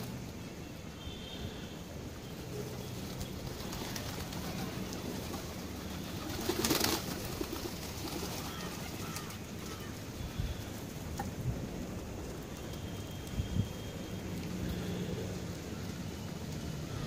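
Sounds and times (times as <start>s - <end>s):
pigeons cooing softly: 1.0s - 11.4s, 14.1s - 17.0s
pigeon wing flaps: 3.0s - 9.9s.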